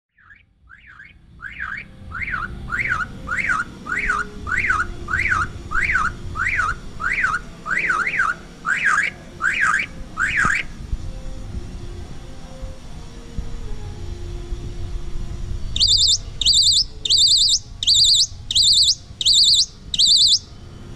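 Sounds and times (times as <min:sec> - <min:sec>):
myna whistling call: 0:00.1 - 0:10.7, 0:15.8 - 0:20.5.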